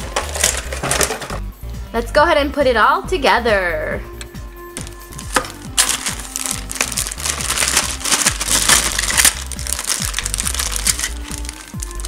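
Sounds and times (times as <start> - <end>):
plastic bags crinkling: 0.0 - 1.2, 4.8 - 12.0
background music: 0.0 - 12.0.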